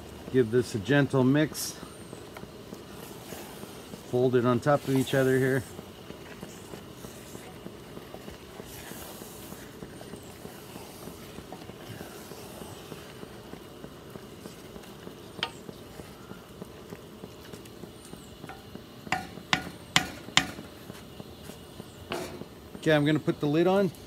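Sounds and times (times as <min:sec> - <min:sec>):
food sizzling: 0:00.0 - 0:24.0
wooden spoon stirring food in pan: 0:00.0 - 0:24.0
spoon knocking against pan: 0:18.5 - 0:20.6.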